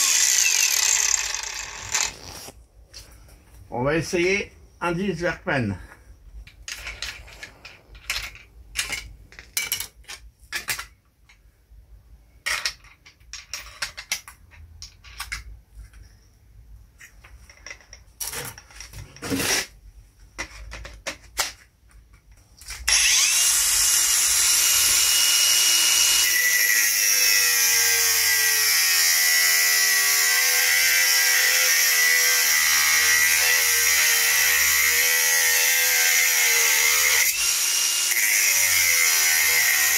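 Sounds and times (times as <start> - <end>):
angle grinder running: 0.0 - 2.5, 22.9 - 39.9
clicks and knocks of tool handling: 17.0 - 19.3.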